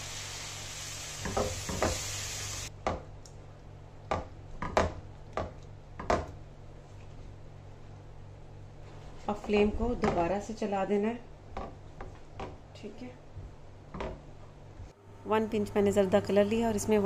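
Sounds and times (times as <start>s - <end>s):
hissing pan: 0.0s - 2.7s.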